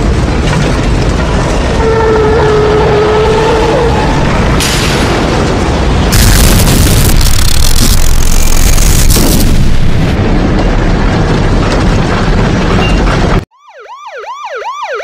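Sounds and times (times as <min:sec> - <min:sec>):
rough roaring rumble: 0:00.0 - 0:13.4
emergency siren yelping: 0:01.8 - 0:04.5, 0:13.5 - 0:15.0.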